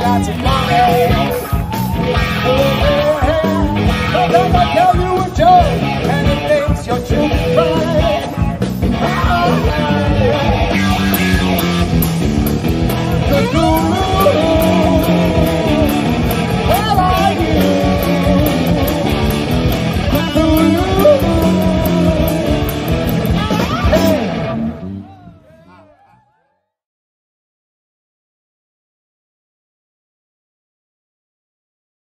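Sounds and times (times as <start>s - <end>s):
person singing: 0.0s - 11.2s, 13.1s - 26.7s
drum beat: 0.0s - 24.3s
electric guitar: 0.0s - 25.8s.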